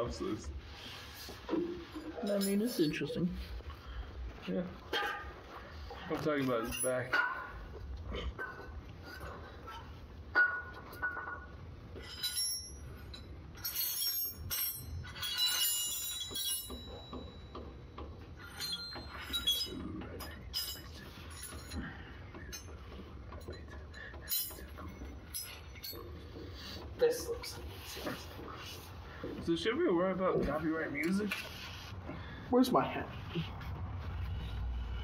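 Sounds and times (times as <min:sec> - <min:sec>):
metal wrenches clinking: 0:01.5 - 0:03.2, 0:06.2 - 0:07.8, 0:08.4 - 0:29.4.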